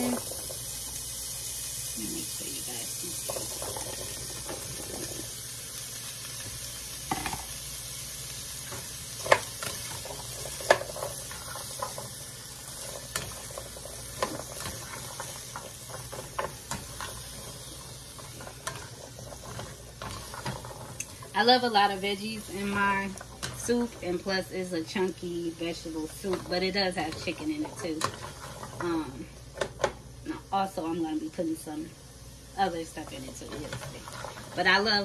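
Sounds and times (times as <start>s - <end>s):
vegetables sizzling in oil: 0.0s - 35.0s
spatula scraping and knocking pan: 12.8s - 21.3s, 26.0s - 29.0s.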